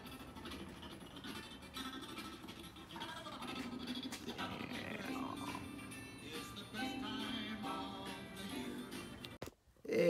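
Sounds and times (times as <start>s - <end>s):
background music melody: 4.3s - 9.4s.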